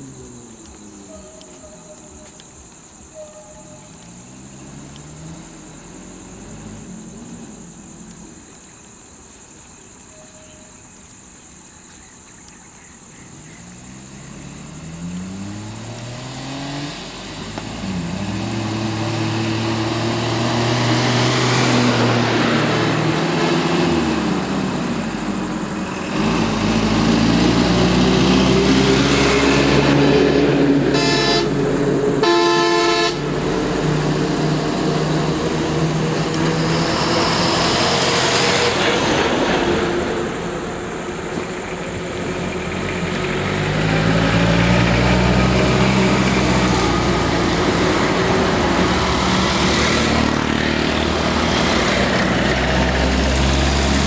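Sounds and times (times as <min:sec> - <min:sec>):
bus engine: 0:00.0 - 0:10.0, 0:13.2 - 0:54.0
truck engine: 0:13.6 - 0:54.0
vehicle horn blasts: 0:30.9 - 0:31.6, 0:32.2 - 0:33.3.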